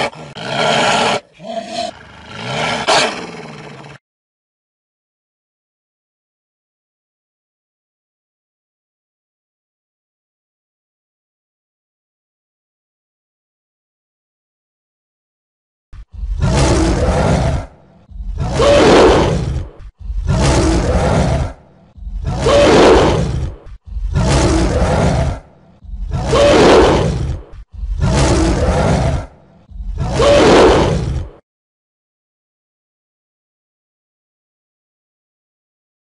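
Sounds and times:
tiger roaring: 0.0s - 4.0s, 16.2s - 31.4s.

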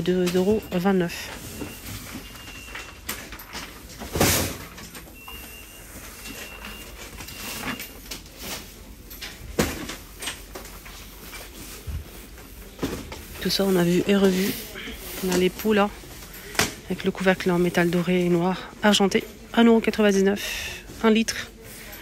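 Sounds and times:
shop background noise: 0.0s - 22.0s
faint high beeps: 0.2s - 3.2s, 5.1s - 8.1s.

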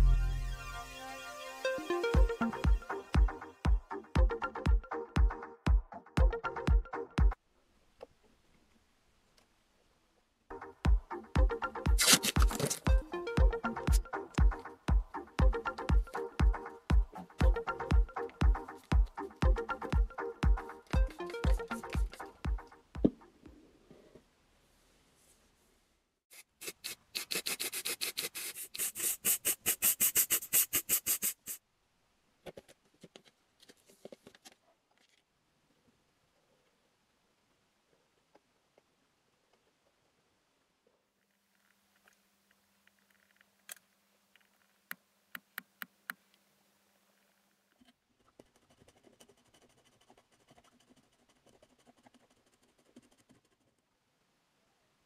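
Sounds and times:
cloth rubbing on a steel blade: 12.0s - 12.9s, 26.3s - 31.6s.

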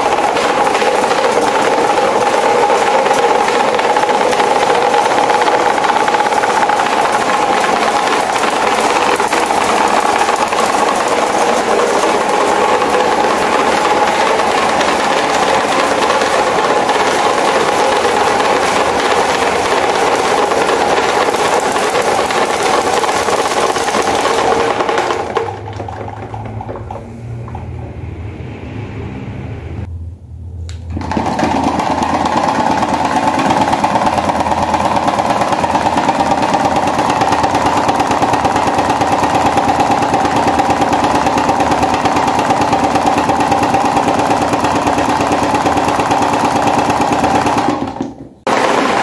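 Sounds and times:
electric fan running roughly: 0.0s - 49.0s
fan whine: 0.0s - 49.0s
low hum: 25.6s - 31.0s.

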